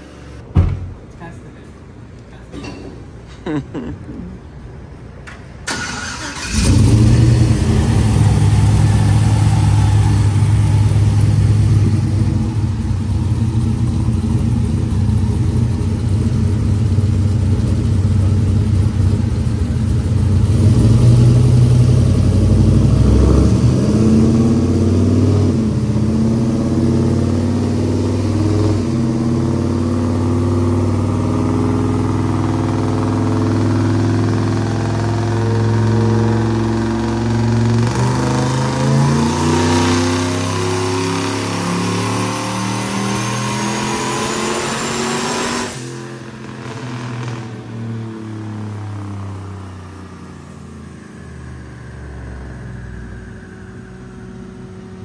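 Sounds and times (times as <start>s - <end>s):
engine cranking: 5.7s - 7.3s
engine choppy idle: 6.3s - 20.5s.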